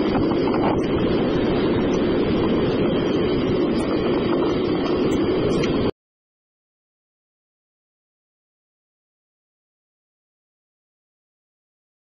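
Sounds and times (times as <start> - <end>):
wind and rolling noise on microphone: 0.0 - 5.9.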